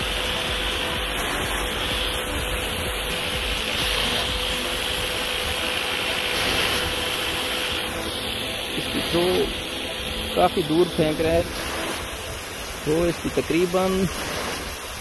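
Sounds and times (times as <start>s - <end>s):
water jet spraying: 0.0s - 15.0s.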